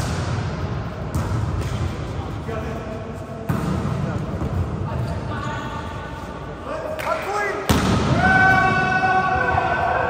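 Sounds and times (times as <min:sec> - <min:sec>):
volleyball smacks: 0:07.7 - 0:08.2.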